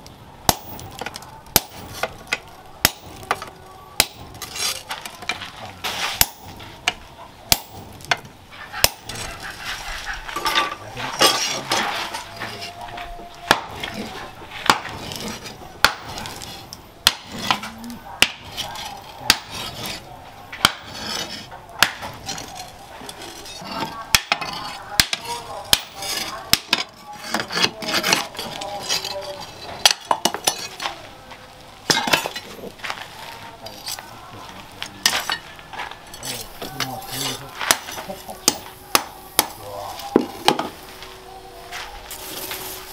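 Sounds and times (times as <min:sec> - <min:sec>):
sledgehammer clanging on metal: 0:00.5 - 0:09.6, 0:10.3 - 0:12.8, 0:31.9 - 0:32.6.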